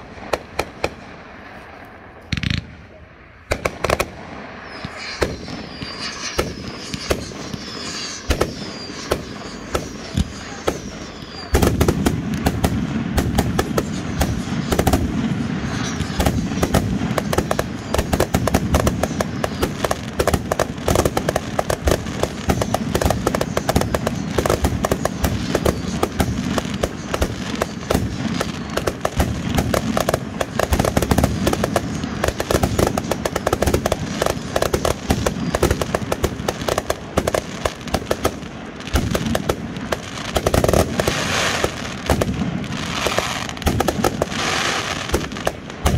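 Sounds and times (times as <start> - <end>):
fireworks barrage of launches and bursts: 0.0 - 45.9.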